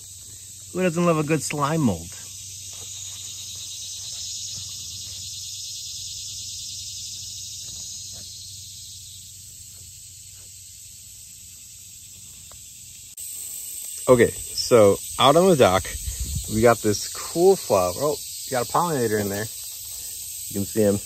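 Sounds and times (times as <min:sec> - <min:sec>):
insects trilling: 0:00.0 - 0:21.0.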